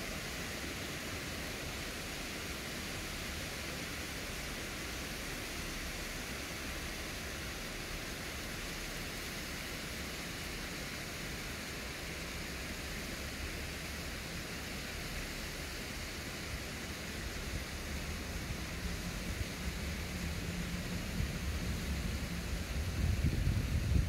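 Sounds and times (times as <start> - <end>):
wind buffeting microphone: 21.0 - 24.0.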